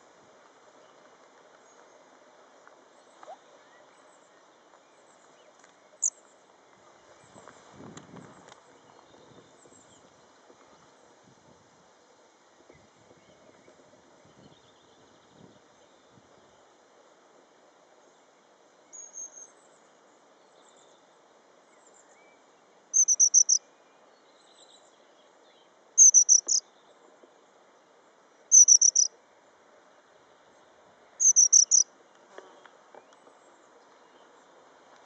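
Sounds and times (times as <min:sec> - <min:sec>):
bird calling high and thin: 0:23.0 - 0:23.6, 0:26.0 - 0:26.6, 0:28.5 - 0:29.1, 0:31.2 - 0:31.8.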